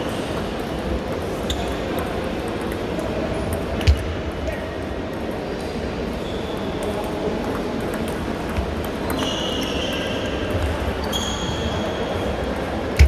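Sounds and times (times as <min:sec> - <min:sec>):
table tennis balls ticking: 0:00.3 - 0:03.7, 0:06.8 - 0:10.8
short high squeaks: 0:09.1 - 0:10.3, 0:11.0 - 0:12.0.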